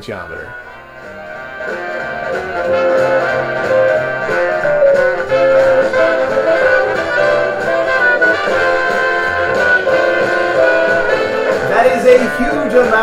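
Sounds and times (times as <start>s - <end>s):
jazzy brass band music on speaker: 0.5s - 13.0s.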